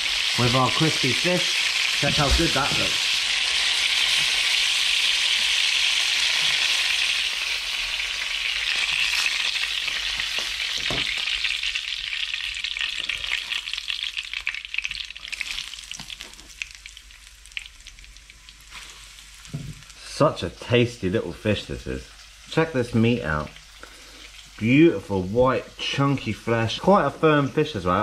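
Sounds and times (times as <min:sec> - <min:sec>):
crackles and pops of frying: 0:00.0 - 0:20.7
oil sizzling in a frying pan: 0:00.0 - 0:28.0.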